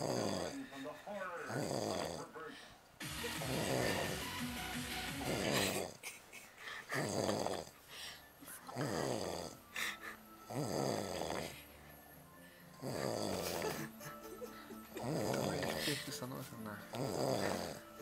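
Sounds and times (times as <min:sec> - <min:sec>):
man snoring heavily: 0:00.0 - 0:00.8, 0:01.4 - 0:02.3, 0:03.0 - 0:06.0, 0:06.9 - 0:07.8, 0:08.7 - 0:11.6, 0:12.7 - 0:13.9, 0:14.8 - 0:16.0, 0:16.9 - 0:18.0.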